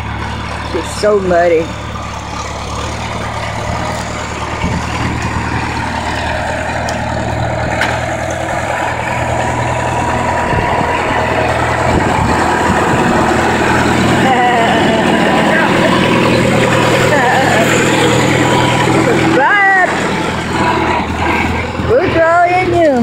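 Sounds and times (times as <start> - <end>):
tractor engine running: 0.0 - 23.0.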